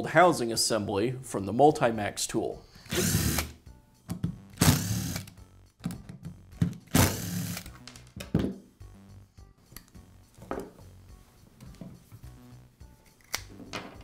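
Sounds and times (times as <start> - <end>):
cordless drill running: 2.9 - 3.5, 4.6 - 5.3, 6.9 - 7.7.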